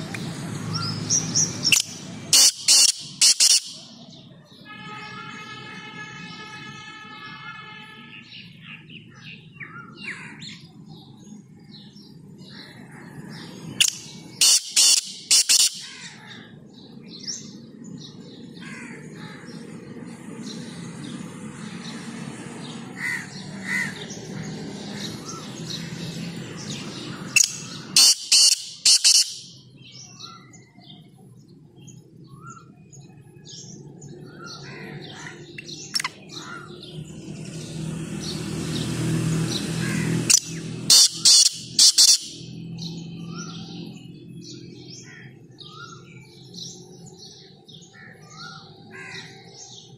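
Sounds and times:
small birds chirping: 0.0 - 4.7, 8.1 - 49.9
bird calling sharp notes: 0.8 - 4.0, 13.8 - 16.2, 27.2 - 29.6, 35.2 - 36.7, 39.8 - 42.5.

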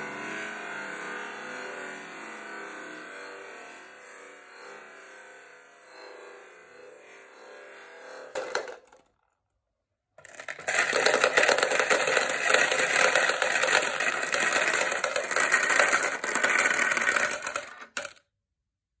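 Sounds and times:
glass marbles clattering in plastic bowl: 10.2 - 18.2.

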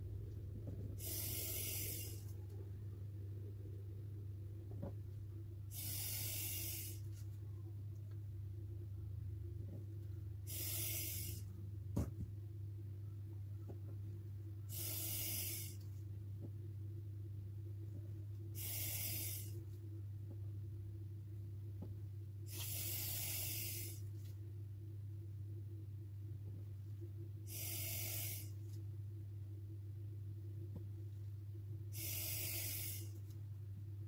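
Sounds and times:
low electrical hum: 0.0 - 34.0
person breathing: 1.0 - 2.4.

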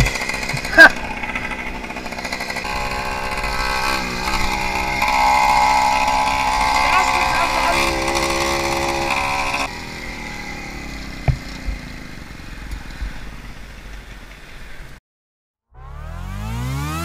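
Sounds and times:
moped engine running: 0.0 - 14.4, 15.8 - 17.0
electronic music with rising sweep: 15.8 - 17.0.

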